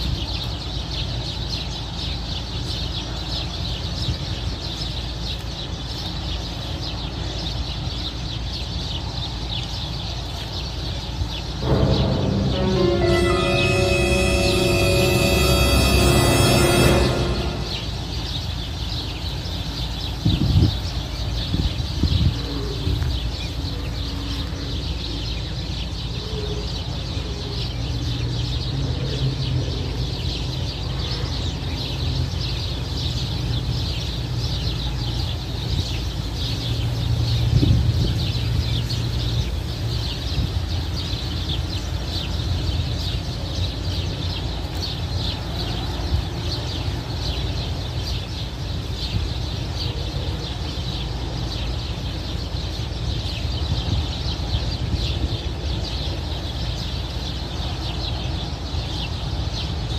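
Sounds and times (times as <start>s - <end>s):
wind rumble on microphone: 20.1s - 23.6s, 35.5s - 42.0s, 52.3s - 57.4s.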